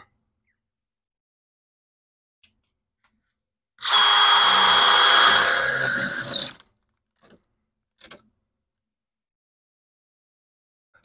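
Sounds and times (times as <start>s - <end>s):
drill cutting into sheet metal: 3.8s - 6.6s.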